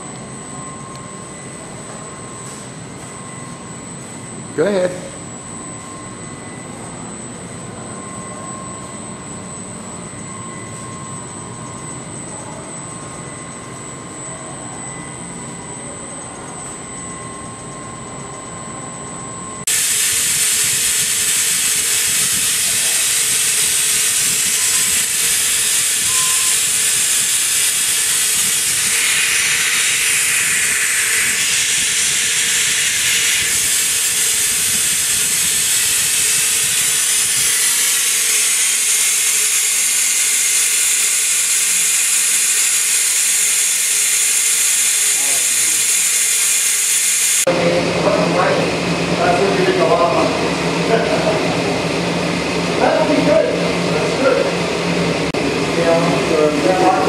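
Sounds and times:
steady lower tone: 0.0s - 19.8s, 20.4s - 40.7s
machine humming: 0.0s - 57.0s
thin high whines: 0.0s - 57.0s
loud rushing hiss: 19.7s - 51.8s.

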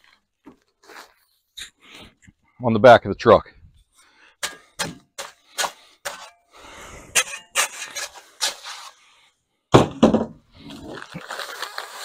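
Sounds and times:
paper bag scraping and rustling: 10.6s - 12.0s.

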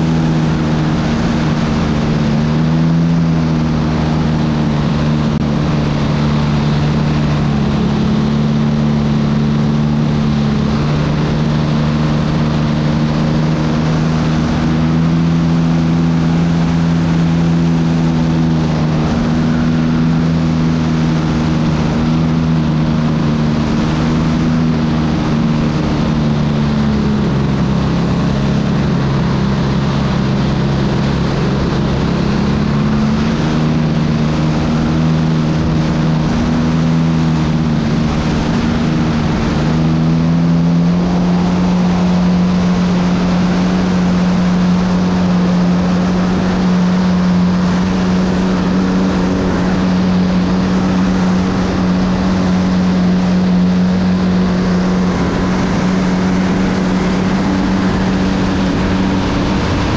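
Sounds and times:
model airplane motor and propeller: 0.0s - 59.9s
wind rushing: 15.8s - 59.9s.

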